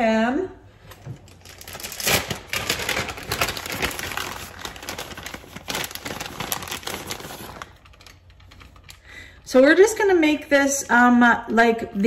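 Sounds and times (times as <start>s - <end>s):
plastic bag crinkling: 1.2s - 9.1s.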